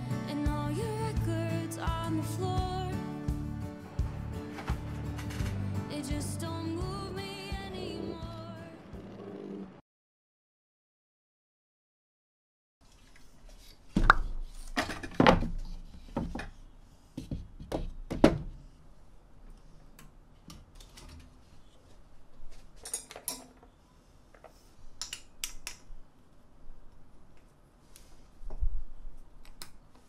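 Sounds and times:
objects clicking and knocking: 4.5 - 5.6.

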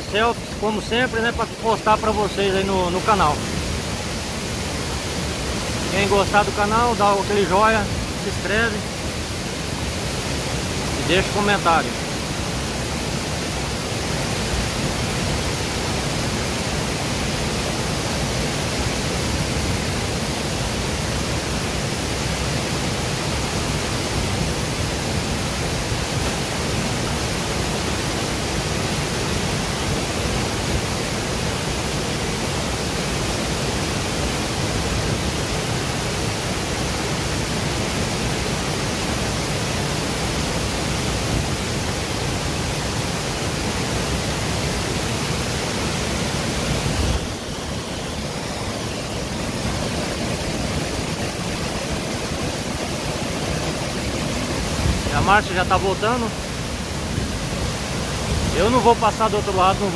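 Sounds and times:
waterfall roaring: 0.0 - 59.9.

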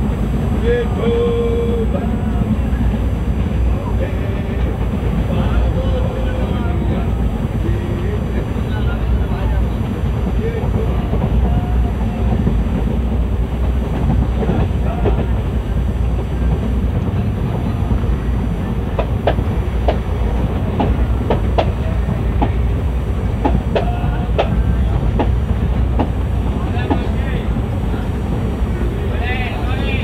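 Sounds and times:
train coach rumble: 0.0 - 30.0
wheels clacking over rail joints: 9.7 - 30.0.

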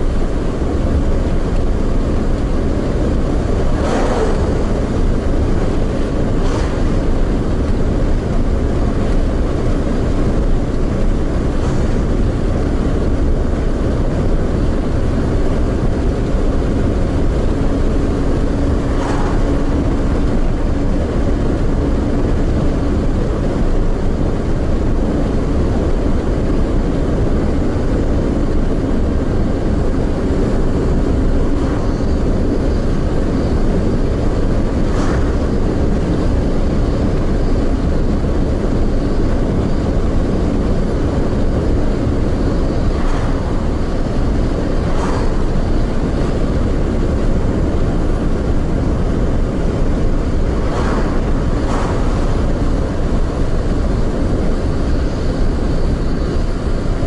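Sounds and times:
car tyres and engine rumble: 0.0 - 57.0
brief whooshes: 18.9 - 19.9, 42.8 - 44.1, 50.6 - 52.6.

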